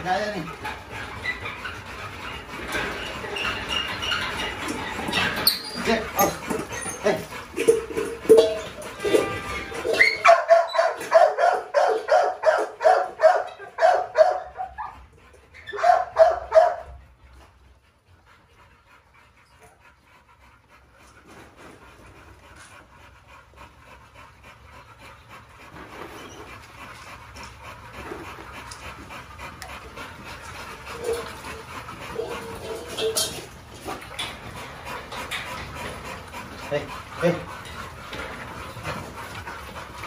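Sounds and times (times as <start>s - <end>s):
dog barking: 10.2s - 14.8s, 15.8s - 16.8s.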